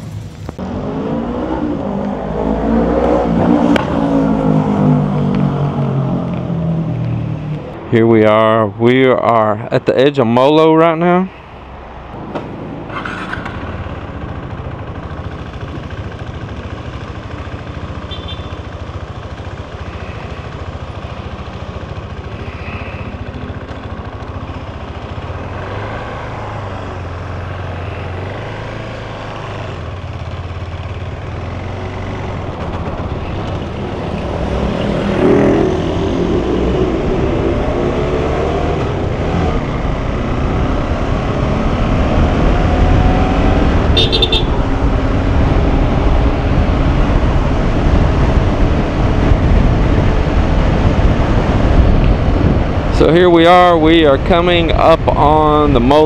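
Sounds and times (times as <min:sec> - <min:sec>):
road and traffic noise: 0:00.0 - 0:56.0
motorcycle engine running: 0:12.8 - 0:56.0.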